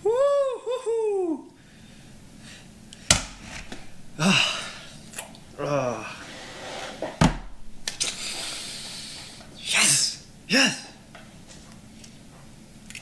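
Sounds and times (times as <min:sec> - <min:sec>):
man crying out loudly: 0:00.0 - 0:01.5, 0:04.1 - 0:04.9, 0:05.6 - 0:06.2, 0:09.7 - 0:11.0
man's breathy vocal bursts: 0:04.2 - 0:05.0.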